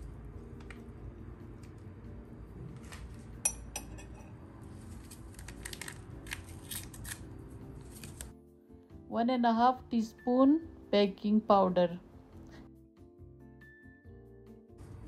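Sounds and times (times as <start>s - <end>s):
metal spoon clinking in bowl: 3.4s - 4.4s.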